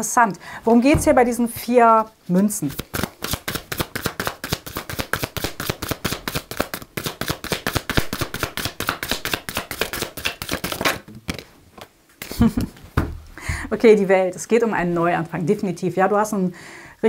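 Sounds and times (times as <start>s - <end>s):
cards being shuffled: 2.6s - 12.4s.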